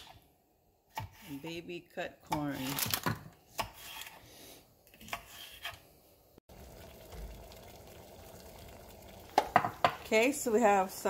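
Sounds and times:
pot of water boiling: 6.5 - 11.0.

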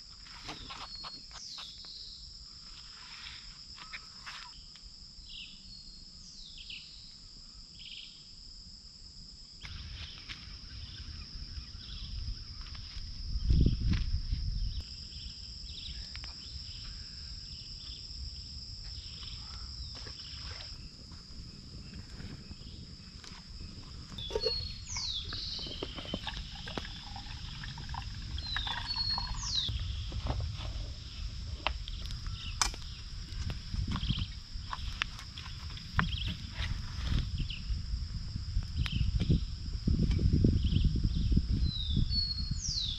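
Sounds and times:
high-pitched insect chorus: 0.0 - 42.9
low rumble: 21.2 - 34.6.

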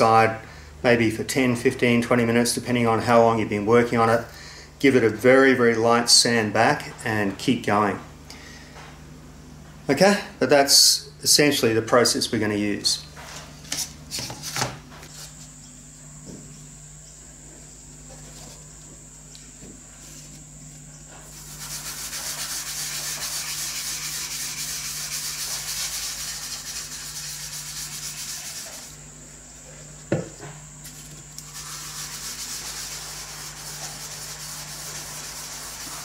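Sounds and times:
gritty rubbing on wood: 21.3 - 29.0, 30.9 - 36.0.

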